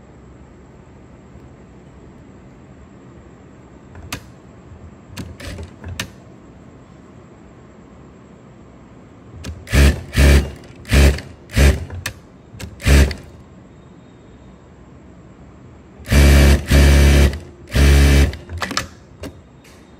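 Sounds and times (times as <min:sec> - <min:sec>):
sewing machine stitching: 0:05.2 - 0:05.8, 0:09.5 - 0:13.3, 0:16.1 - 0:18.9.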